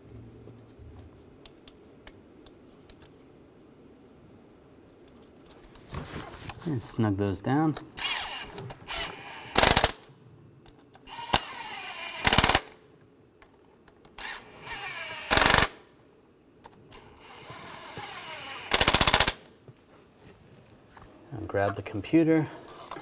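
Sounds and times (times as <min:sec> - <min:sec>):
impact tool whining: 0:08.0 - 0:09.9, 0:11.1 - 0:12.6, 0:14.2 - 0:15.7, 0:16.9 - 0:19.0.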